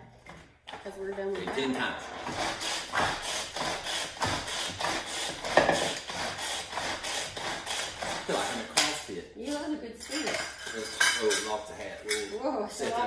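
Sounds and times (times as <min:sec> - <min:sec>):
hand food chopper chopping cabbage: 0:00.3 - 0:09.1.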